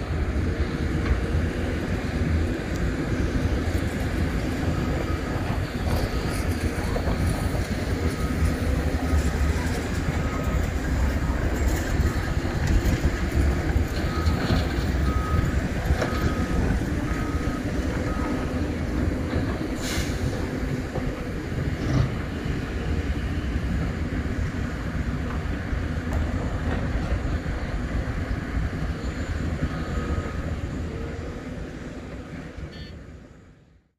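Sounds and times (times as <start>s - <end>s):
diesel engines rumbling: 0.0s - 33.8s
high beeping alarm: 8.0s - 18.6s, 32.7s - 33.0s.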